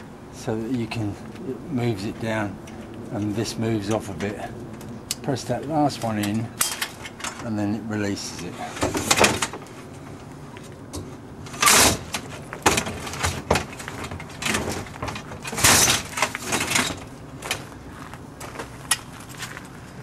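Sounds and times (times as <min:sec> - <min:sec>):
metal tubes sliding and clanking: 0:11.5 - 0:17.1.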